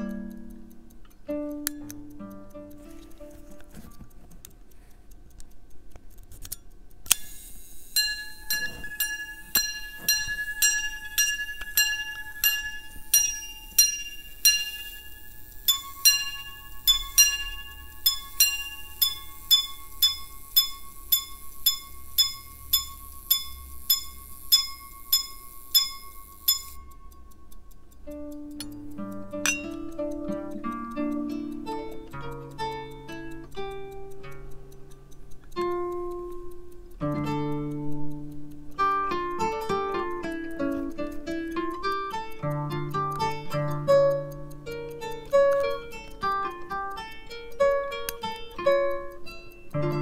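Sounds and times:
watch gongs chiming: 7.9s - 27.3s, 29.4s - 32.0s.

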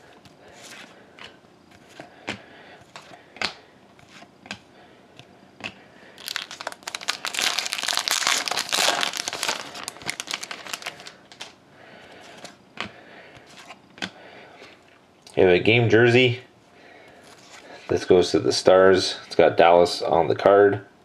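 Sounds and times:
foil wrapper crinkling: 6.2s - 11.6s.

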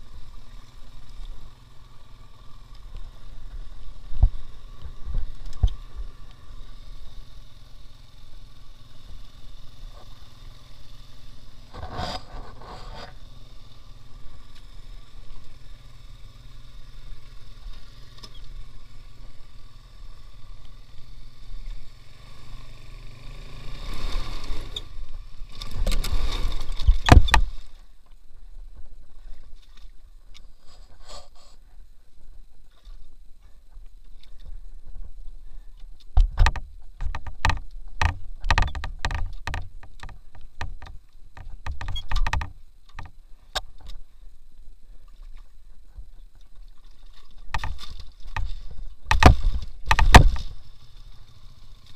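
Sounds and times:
motorcycle engine running: 0.0s - 29.4s, 47.4s - 51.9s.

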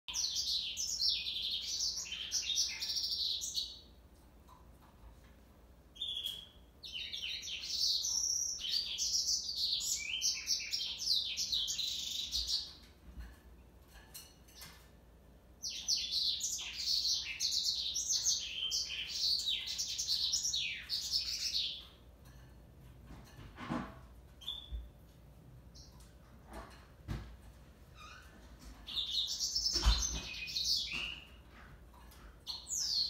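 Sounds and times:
canary singing trills: 0.1s - 3.9s, 5.9s - 12.9s, 15.6s - 22.0s, 24.4s - 25.0s, 28.0s - 31.4s, 32.4s - 33.0s.

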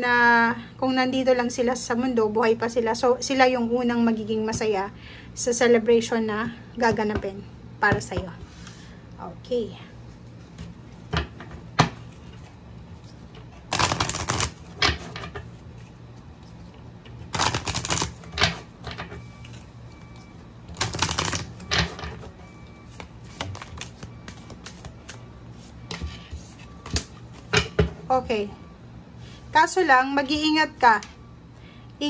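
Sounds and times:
cards being shuffled: 12.1s - 16.7s, 17.3s - 18.3s, 20.7s - 21.6s, 22.9s - 25.7s.

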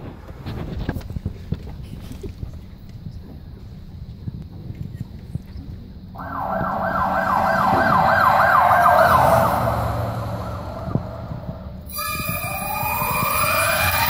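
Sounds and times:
siren wail over loudspeakers: 6.2s - 14.0s.

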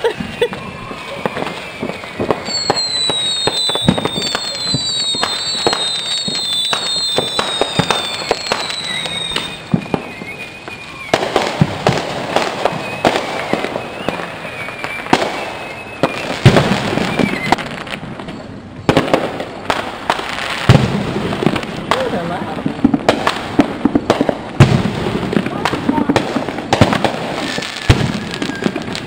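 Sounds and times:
distant fireworks popping and banging: 0.0s - 29.0s
high whistling tones: 0.1s - 11.6s, 12.4s - 18.9s, 28.0s - 29.0s.

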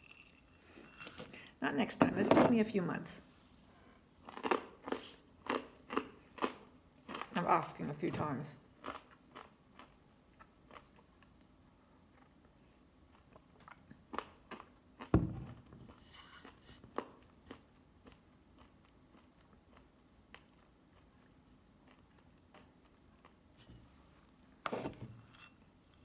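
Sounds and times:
nuts crunching while chewing: 4.2s - 7.4s, 8.8s - 11.5s.

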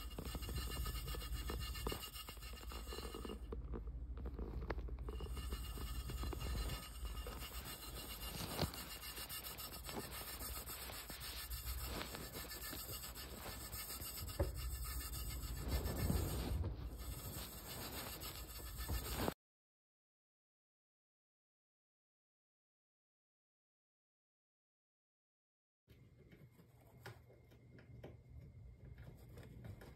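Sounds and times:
hamster wheel whirring: 0.0s - 19.4s.

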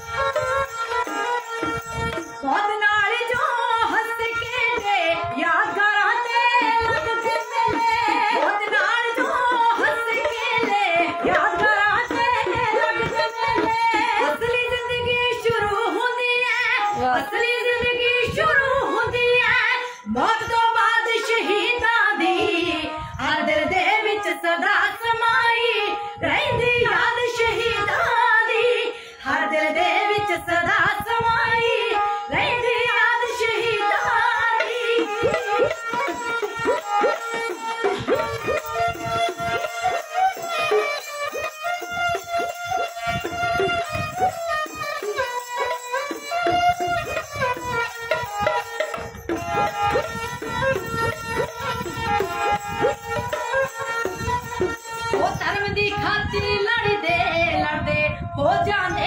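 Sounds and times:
hand drums: 0.0s - 2.4s, 5.7s - 15.8s, 32.6s - 55.9s
bowed string accompaniment: 0.0s - 18.1s, 30.0s - 56.4s
women singing: 2.4s - 41.0s, 55.1s - 59.0s.

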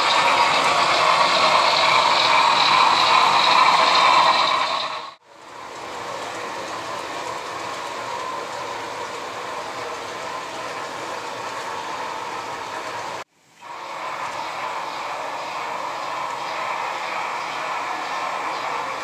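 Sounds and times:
model train cars rolling on track: 0.0s - 19.0s.

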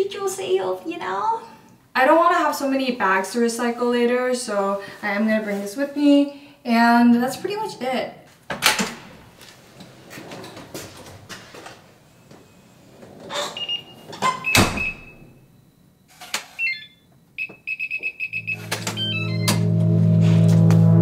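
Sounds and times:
keypad lock beeps: 13.6s - 15.4s, 16.5s - 19.6s
door shutting with latch click: 14.1s - 15.2s
guitar and bass music: 18.6s - 21.0s.

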